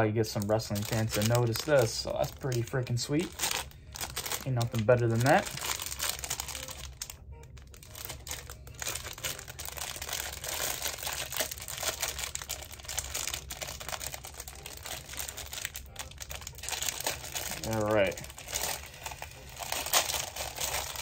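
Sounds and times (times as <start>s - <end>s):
plastic packaging crinkling: 0.3s - 21.0s.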